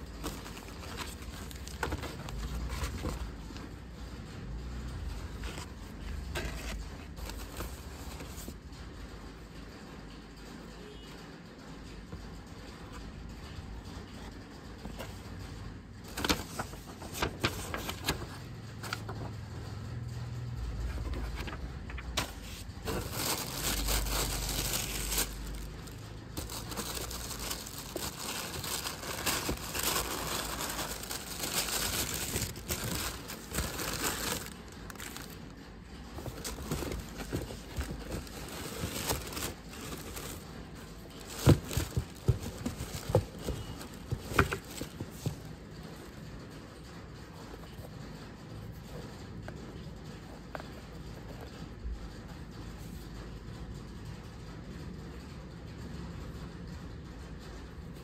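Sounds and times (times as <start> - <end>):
tissue paper crinkling: 0.0 - 3.4, 16.1 - 18.3, 21.4 - 35.6, 36.2 - 45.4.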